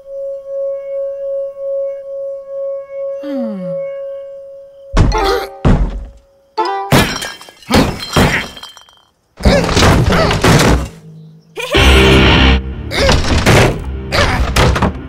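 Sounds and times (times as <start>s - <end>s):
music: 11.7s - 15.0s.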